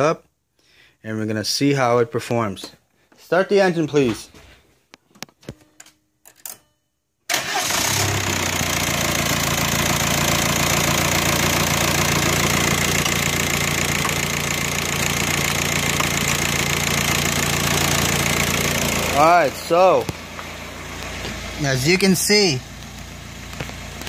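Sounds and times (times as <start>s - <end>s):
diesel engine starting and idling: 7.3s - 24.0s.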